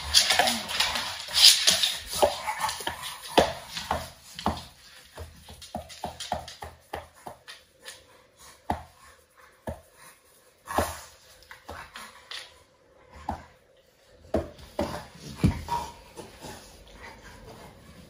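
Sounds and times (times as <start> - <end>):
dog scuffling on hard floor: 0.0 - 8.9.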